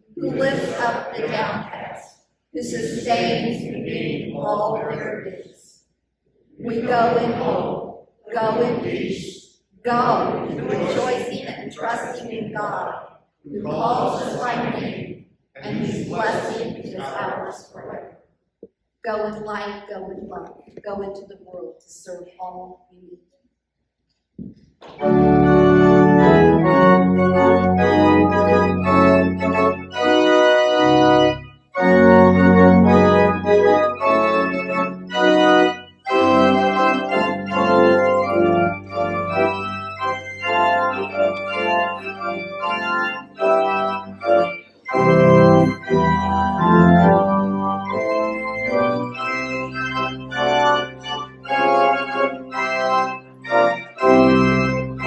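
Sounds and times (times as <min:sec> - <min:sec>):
church organ playing chords: 0:00.0 - 0:01.7, 0:09.9 - 0:12.1, 0:24.8 - 0:55.0.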